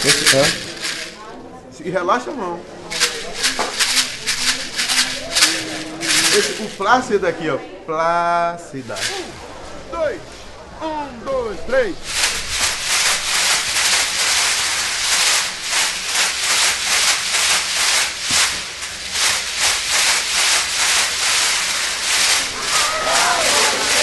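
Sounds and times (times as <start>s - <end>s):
plastic shakers rattling: 0.0s - 1.3s, 2.8s - 7.3s, 8.8s - 9.4s, 11.8s - 24.0s.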